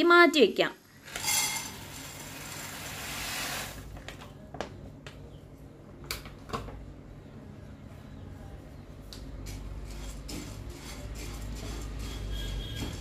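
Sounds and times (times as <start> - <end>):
seeds pouring into a pan: 1.1 - 3.9.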